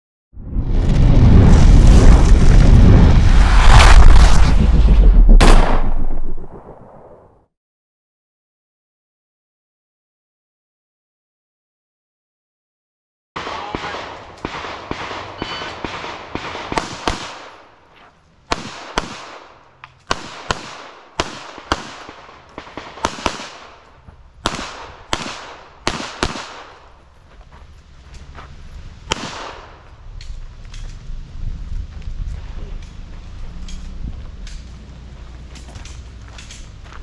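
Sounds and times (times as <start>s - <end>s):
pistol gunfire cracks: 5.4s - 6.7s, 18.5s - 26.8s, 29.1s - 29.8s.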